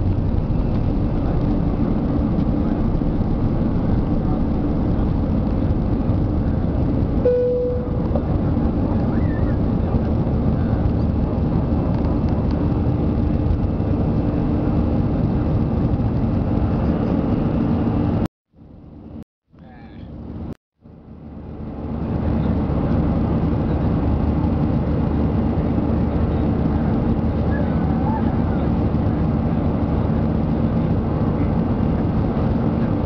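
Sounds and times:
steady tone: 0.0 - 8.6
jet engines at takeoff thrust: 0.0 - 19.2, 20.0 - 33.0.

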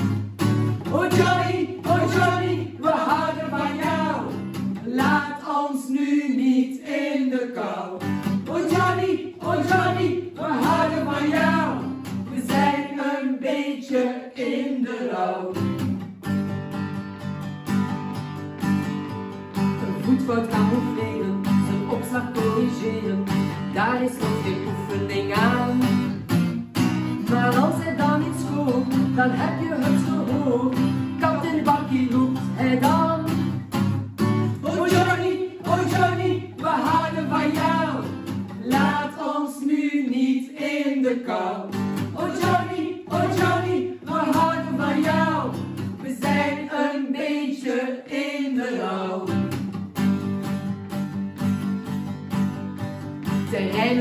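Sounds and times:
acoustic guitar strumming: 0.0 - 5.4, 8.0 - 12.9, 15.5 - 39.2, 41.7 - 46.7, 49.3 - 54.0
women singing together: 0.8 - 15.6, 23.8 - 25.8, 27.3 - 33.3, 34.6 - 49.5, 53.5 - 54.0.

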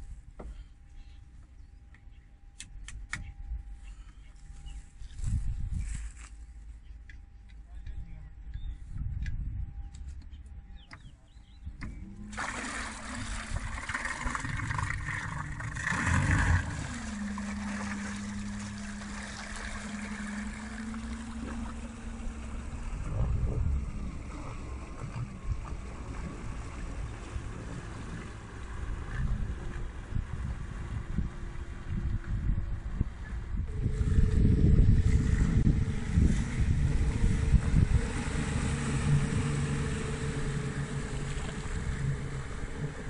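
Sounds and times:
wind noise: 4.5 - 6.4, 7.8 - 10.8, 11.6 - 43.0
electric outboard motor hum: 6.8 - 43.0
propeller churning water: 11.7 - 43.0
water wash: 12.2 - 31.9, 33.7 - 43.0.

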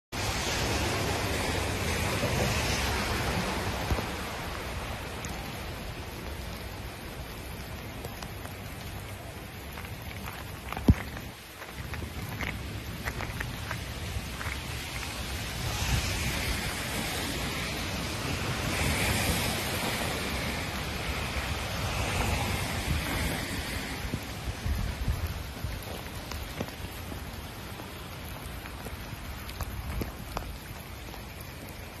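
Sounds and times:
rain hissing on pavement: 0.1 - 32.0
hailstones ticking: 7.5 - 32.0.

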